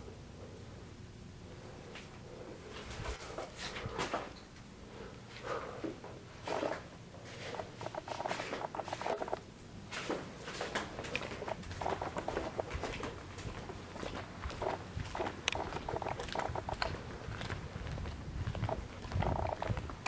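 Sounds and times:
footsteps on debris: 0:06.4 - 0:20.0.

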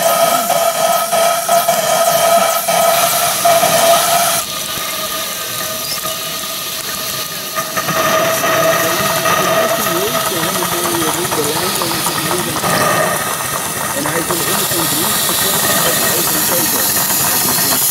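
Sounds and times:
high-pitched squeal: 0:00.0 - 0:17.9
steam hissing: 0:00.0 - 0:17.9.

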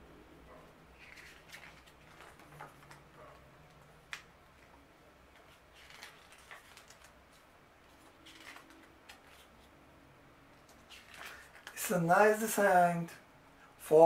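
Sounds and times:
paper pages rustling: 0:01.0 - 0:09.8, 0:10.6 - 0:11.9.

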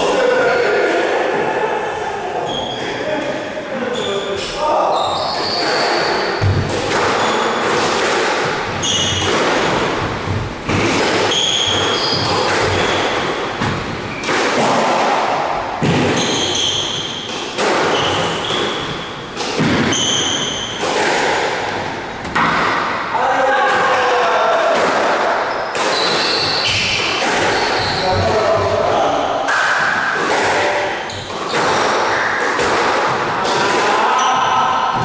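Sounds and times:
shoes squeaking on court floor: 0:04.4 - 0:06.6, 0:08.7 - 0:09.4, 0:11.3 - 0:13.2, 0:16.2 - 0:17.2, 0:25.5 - 0:28.2
squash ball smacking rackets and walls: 0:05.4 - 0:23.1, 0:23.7 - 0:35.0.

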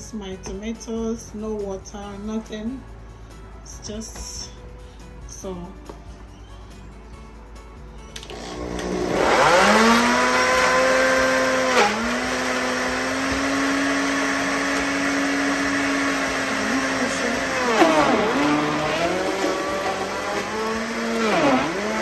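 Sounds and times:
blender motor whine: 0:08.3 - 0:22.0.

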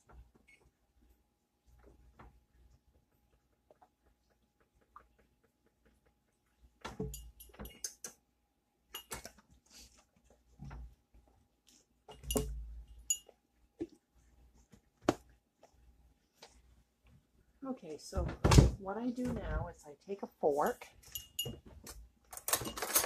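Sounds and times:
dishes and utensils clinking: 0:07.0 - 0:08.0, 0:08.9 - 0:09.3, 0:12.1 - 0:13.4, 0:21.0 - 0:23.0.

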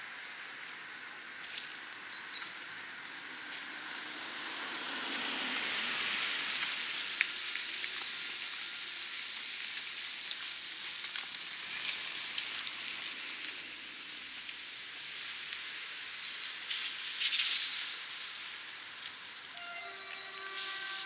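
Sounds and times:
car tyres hissing on wet road: 0:02.4 - 0:21.0.

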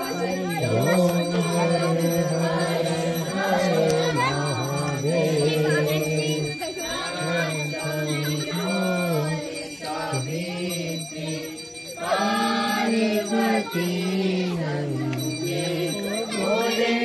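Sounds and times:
bells ringing: 0:00.0 - 0:17.0
devotional song with singing: 0:00.0 - 0:17.0.

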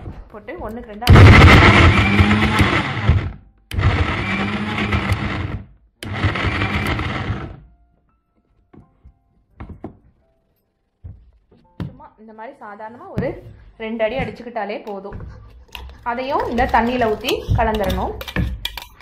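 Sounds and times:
mixer grinder crushing lemons: 0:01.1 - 0:07.6, 0:16.4 - 0:19.0.

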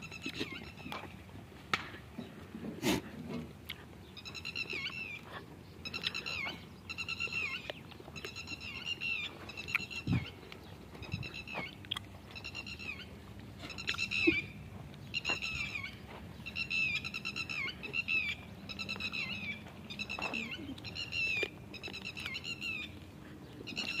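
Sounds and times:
high-pitched quavering animal calls: 0:04.2 - 0:10.4, 0:11.0 - 0:23.0.

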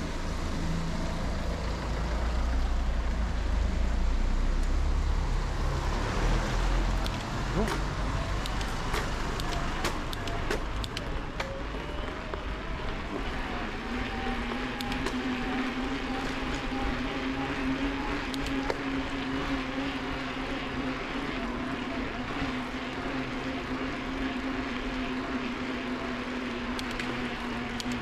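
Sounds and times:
electric motor whining: 0:05.9 - 0:28.0.

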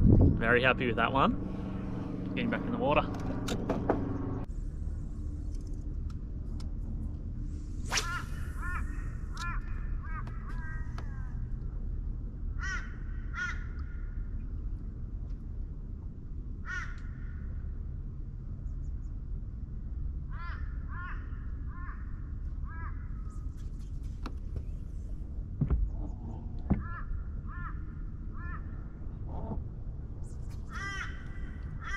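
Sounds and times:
low steady rumble: 0:00.0 - 0:31.9
crow cawing: 0:12.6 - 0:14.2, 0:16.6 - 0:17.4, 0:20.3 - 0:23.2, 0:26.7 - 0:28.8, 0:30.7 - 0:31.9.

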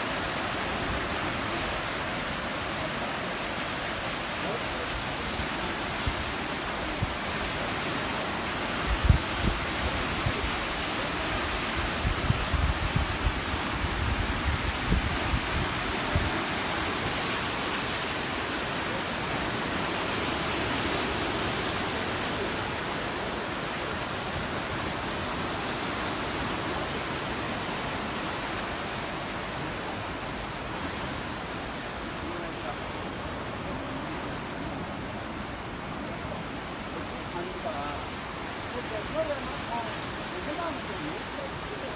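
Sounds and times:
wind buffeting microphone: 0:08.5 - 0:17.3.

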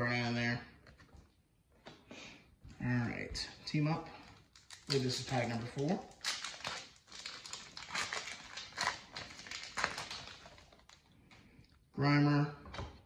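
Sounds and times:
foil wrapper tearing and crinkling: 0:04.4 - 0:11.1.

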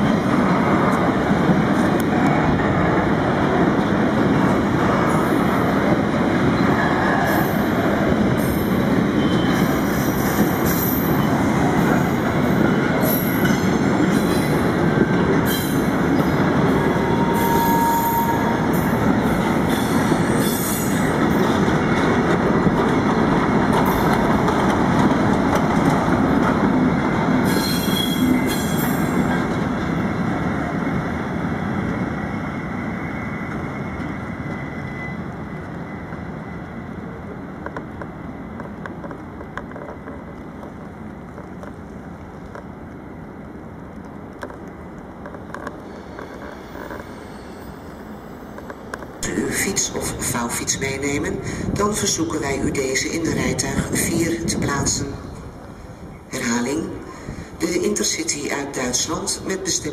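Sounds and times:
train wheels rumbling on rail: 0:00.0 - 0:59.9
high-pitched wheel squeals: 0:17.0 - 0:18.6, 0:27.5 - 0:29.0, 0:45.9 - 0:48.7.

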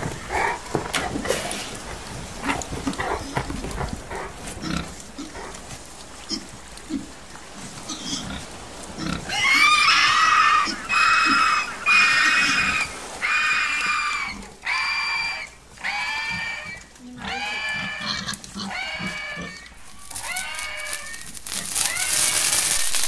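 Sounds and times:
high-pitched squeals: 0:19.8 - 0:23.0.

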